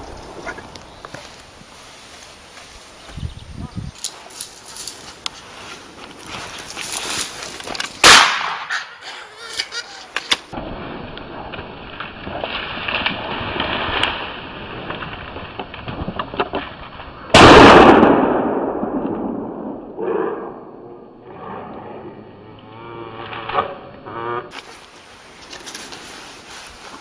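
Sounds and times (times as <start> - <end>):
rustling and crackling: 0.0 - 17.3, 24.5 - 27.0
gunshots: 8.0 - 8.8, 17.4 - 20.7.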